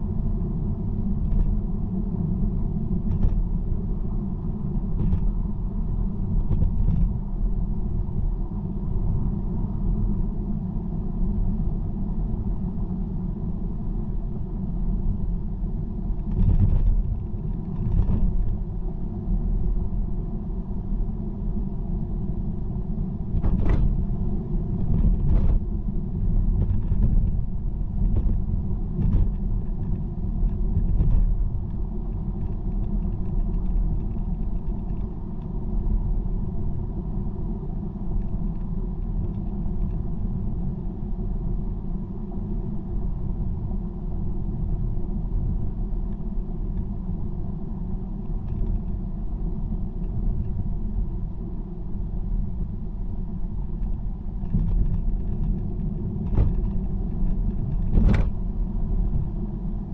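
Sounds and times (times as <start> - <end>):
tyre and road rumble: 23.1 - 37.3, 44.6 - 59.9.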